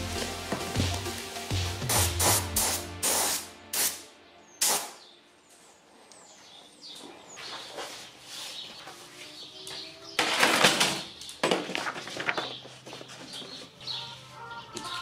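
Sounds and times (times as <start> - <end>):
spray gun hissing bursts: 0.0 - 4.0, 4.6 - 5.0
high bird chirps: 12.5 - 15.0.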